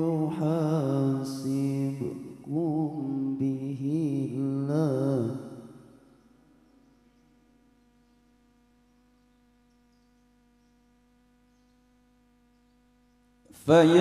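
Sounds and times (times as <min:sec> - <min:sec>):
man reciting through microphone: 0:00.0 - 0:06.0, 0:13.5 - 0:14.0
faint steady hum: 0:00.0 - 0:14.0.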